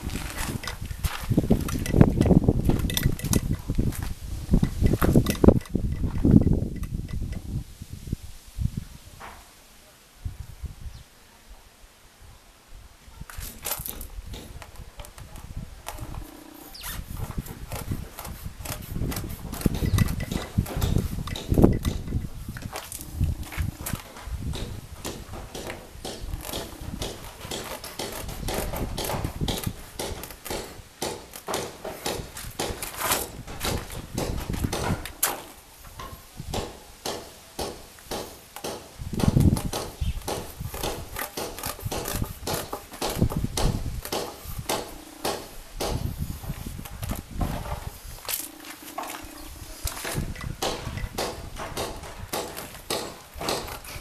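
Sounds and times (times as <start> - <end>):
gravel crunching: 0.0 - 6.7
rubber creaking: 0.0 - 7.6, 13.4 - 35.6, 39.1 - 54.0
knife sawing through rubber: 16.0 - 21.3, 26.1 - 30.8, 40.3 - 43.4.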